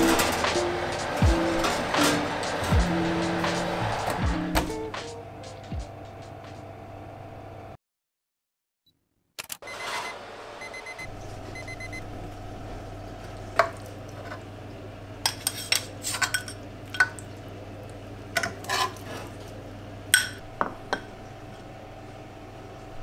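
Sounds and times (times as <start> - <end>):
steady low hum: 0.0 - 7.8
utensil scraping metal tray: 15.3 - 16.6, 18.4 - 19.4.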